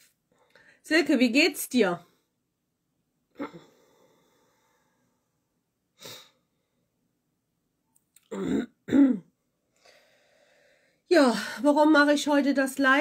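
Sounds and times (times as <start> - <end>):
woman breathing through nose: 9.8 - 11.0.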